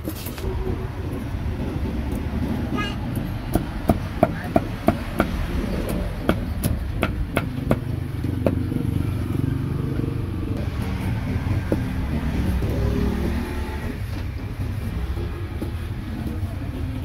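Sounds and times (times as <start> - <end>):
street traffic rumble: 0.0 - 17.0.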